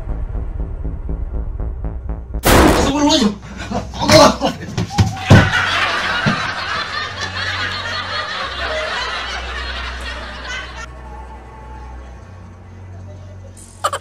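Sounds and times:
people laughing and snickering: 0:03.5 - 0:10.9.

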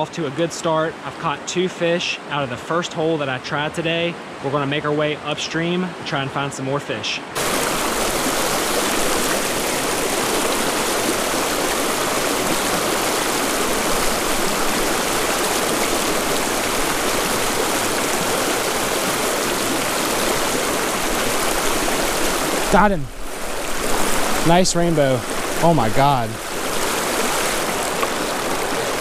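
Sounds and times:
river rushing over rocks: 0:07.3 - 0:29.0.

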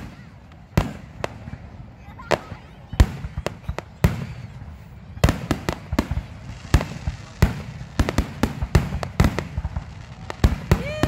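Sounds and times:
fireworks bursting: 0:00.0 - 0:11.0.

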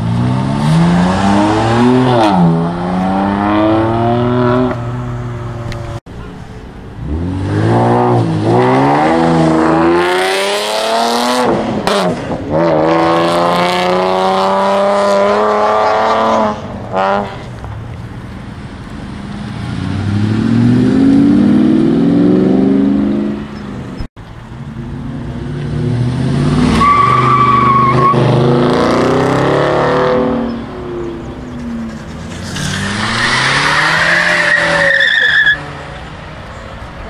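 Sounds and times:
cars accelerating past: 0:19.1 - 0:23.8, 0:24.8 - 0:36.7
tyre squeal: 0:31.5 - 0:35.6.

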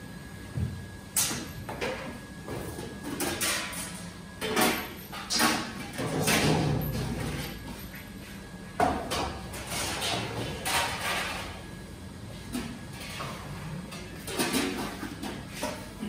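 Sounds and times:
metal pans scraping and clanking: 0:09.0 - 0:11.6, 0:12.5 - 0:16.0.

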